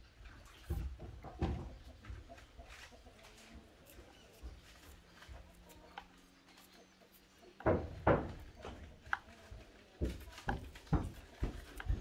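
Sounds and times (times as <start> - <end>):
dull knocks and thuds: 0.7 - 1.9, 7.6 - 8.8, 10.0 - 12.0.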